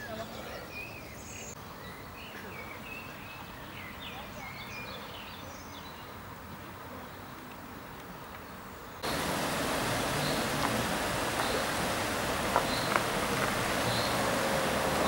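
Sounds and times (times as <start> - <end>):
faint outdoor background: 0.0 - 15.0
water rushing over a weir: 9.0 - 15.0.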